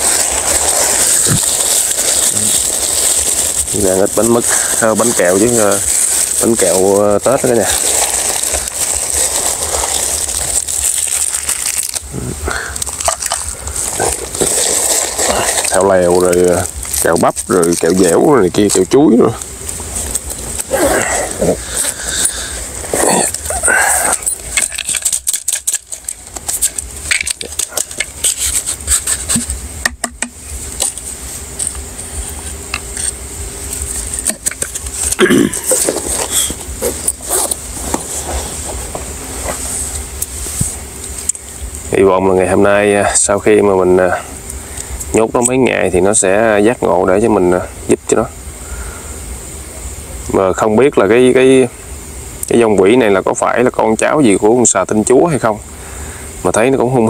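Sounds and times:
plastic wrappers crinkling: 0.0s - 29.7s, 30.4s - 46.5s
steady high hiss: 0.0s - 57.0s.

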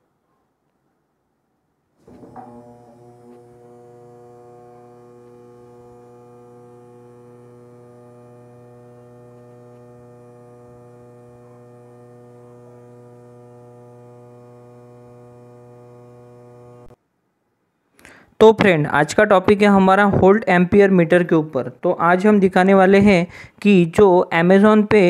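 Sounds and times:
small electric motor humming: 2.0s - 17.0s.

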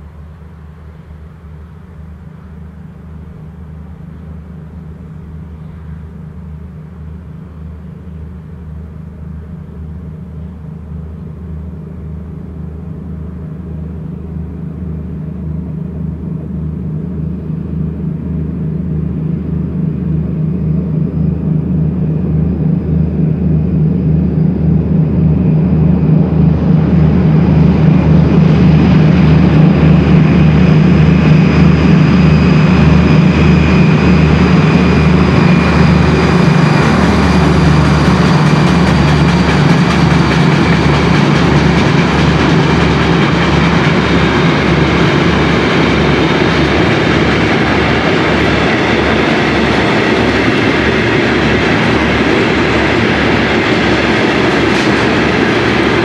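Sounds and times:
diesel locomotive engines droning: 0.0s - 56.0s
high whine: 0.0s - 56.0s.

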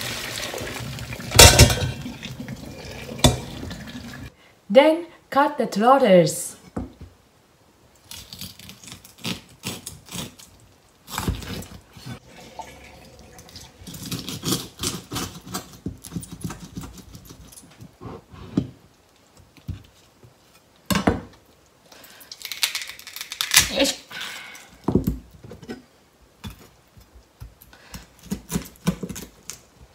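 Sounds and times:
bone cracking: 22.3s - 23.8s.

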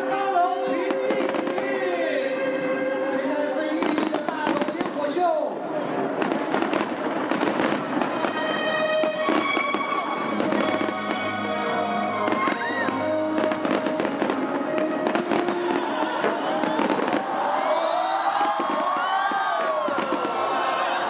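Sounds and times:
fireworks crackling and banging: 0.0s - 2.0s, 3.5s - 21.0s
music playing: 0.0s - 4.7s, 6.2s - 17.7s.

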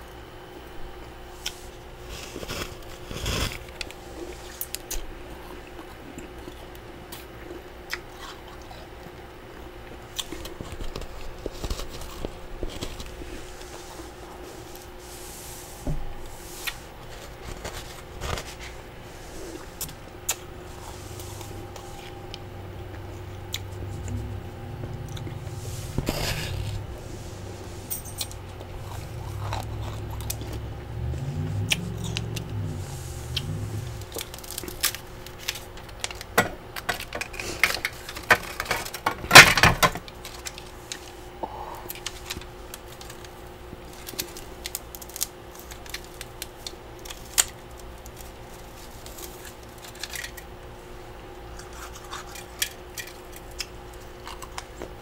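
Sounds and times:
steady low hum: 0.0s - 55.0s
frost being scraped: 2.1s - 3.6s, 13.0s - 19.8s, 25.4s - 27.9s
frost crunching in mouth: 28.2s - 32.6s, 33.3s - 39.0s.

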